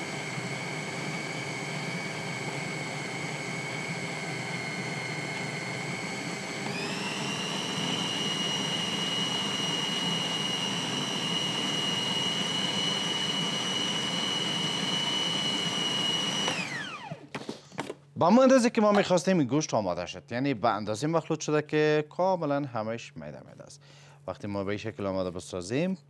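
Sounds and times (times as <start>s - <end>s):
food processor motor whine: 0.0s - 17.9s.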